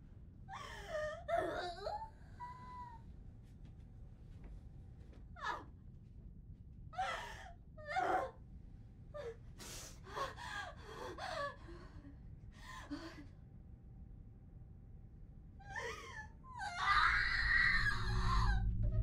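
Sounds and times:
woman sobbing and wailing: 0.5s - 3.0s, 15.6s - 18.8s.

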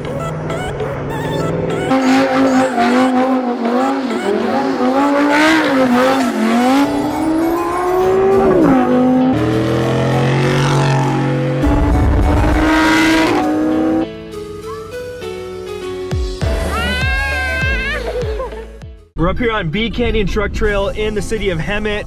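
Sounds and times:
tyres squealing: 0.0s - 6.4s
car engine revving: 0.0s - 14.2s.

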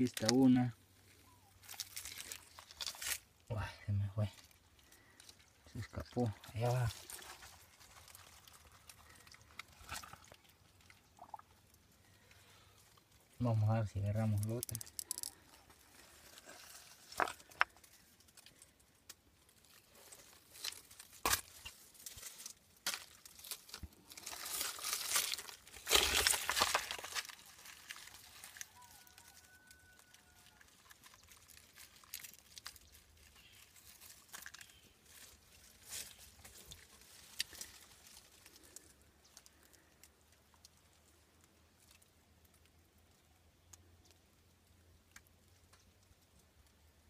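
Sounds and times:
hand rustling dry leaves: 4.1s - 10.3s, 19.5s - 39.6s.

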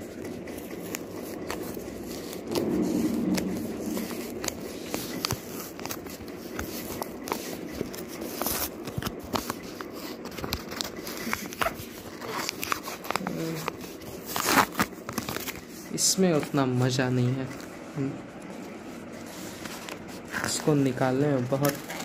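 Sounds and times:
card packaging being opened: 0.0s - 3.0s, 3.6s - 15.7s, 21.4s - 22.0s.

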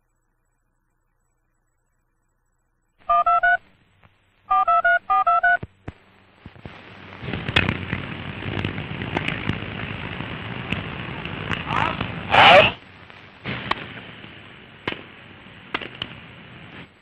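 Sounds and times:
old film soundtrack hiss and crackle: 0.0s - 17.0s
touch-tone keypad beeps: 3.1s - 3.6s, 4.5s - 5.6s.

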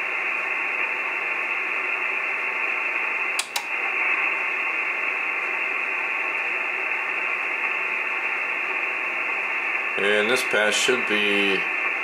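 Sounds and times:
radio receiver hiss: 0.0s - 12.0s
quick clicks: 3.4s - 3.7s.

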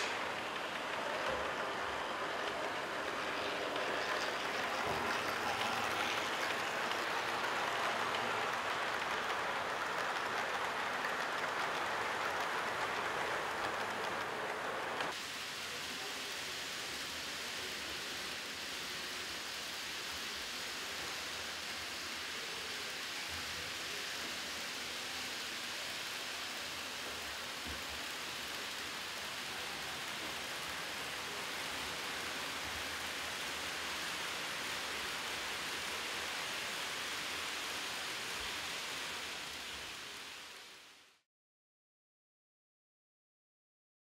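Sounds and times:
model train running on track: 0.0s - 41.2s.

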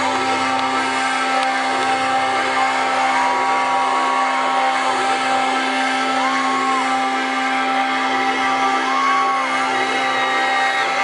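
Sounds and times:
lead guitar note bending: 0.0s - 8.6s
distorted live hard rock: 0.0s - 11.0s.

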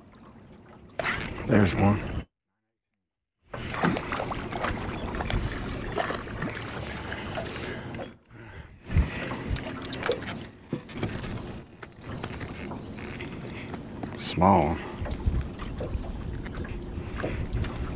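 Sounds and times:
waves lapping against boat hull: 0.0s - 2.3s, 3.5s - 17.9s
wind on microphone: 4.4s - 6.5s, 8.6s - 9.8s, 14.8s - 17.9s.

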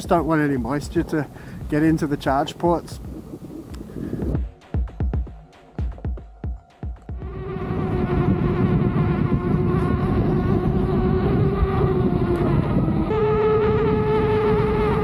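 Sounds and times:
road and wind noise: 0.0s - 4.5s, 7.0s - 15.0s
electric motor whine: 7.2s - 15.0s.

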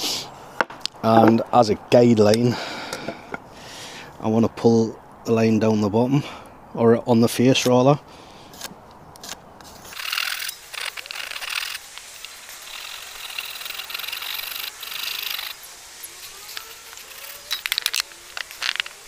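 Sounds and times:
handsaw cutting wood: 9.9s - 19.0s.

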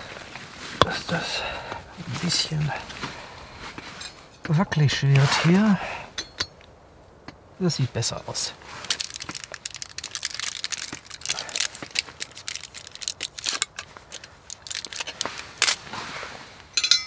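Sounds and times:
crinkling and crunching: 7.7s - 16.6s
metallic clink: 16.7s - 17.0s.

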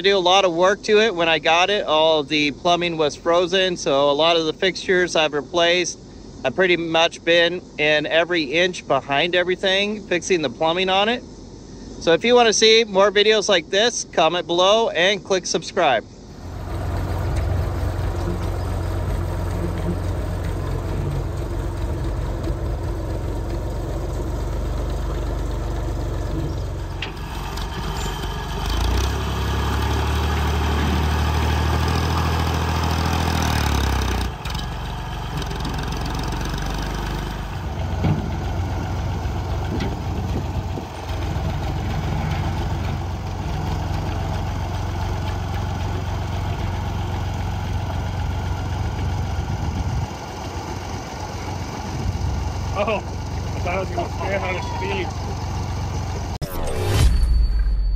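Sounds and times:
backhoe engine running: 16.2s - 56.4s
loader pushing dirt: 16.3s - 57.0s.

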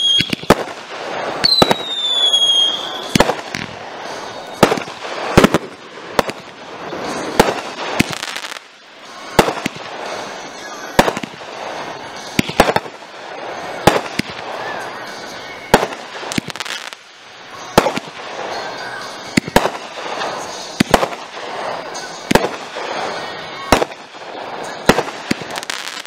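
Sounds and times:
fireworks bangs: 0.0s - 26.0s
fireworks crackle: 0.0s - 26.0s
murmur of voices: 8.7s - 16.4s, 21.4s - 25.8s.

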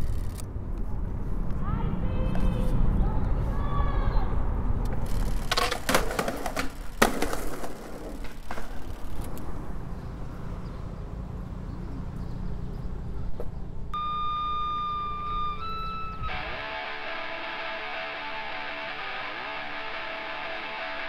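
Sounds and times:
skateboard wheels rolling on pavement: 4.4s - 13.9s
skateboard clacks: 4.9s - 9.4s
steady held note with overtones: 14.0s - 21.0s.

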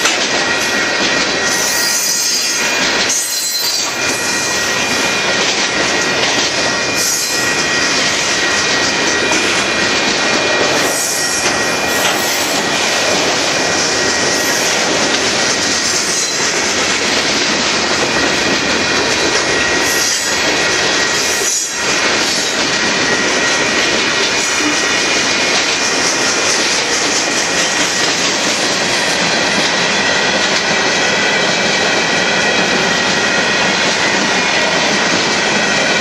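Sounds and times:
rail clack: 0.0s - 36.0s
steel wheels rolling on rails: 0.0s - 36.0s
high wheel squeal: 0.4s - 5.4s.

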